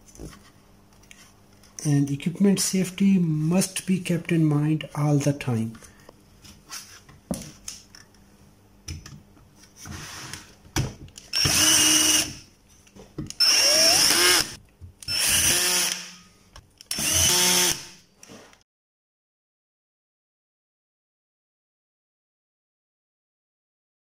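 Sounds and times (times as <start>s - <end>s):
power screwdriver driving screws: 11.3s - 12.4s, 13.4s - 16.2s, 16.9s - 17.9s.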